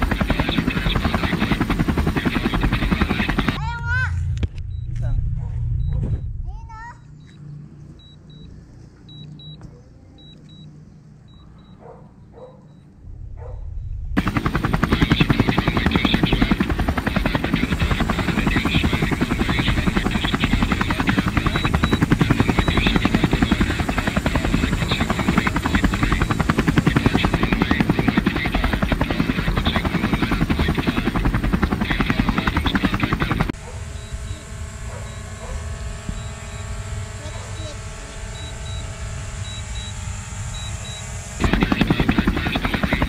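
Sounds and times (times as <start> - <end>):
drone propellers buzzing: 0.0 - 3.6, 14.2 - 43.0.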